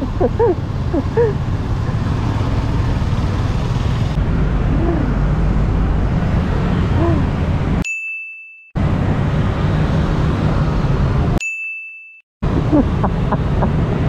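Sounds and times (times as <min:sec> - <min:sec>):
street traffic: 0:00.0 - 0:07.8, 0:08.8 - 0:11.4, 0:12.4 - 0:14.0
wind rumble on microphone: 0:00.0 - 0:07.8.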